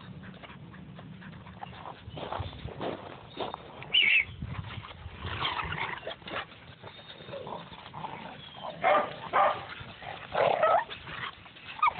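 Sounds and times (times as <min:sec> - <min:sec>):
dogs barking: 0:08.2 - 0:10.9.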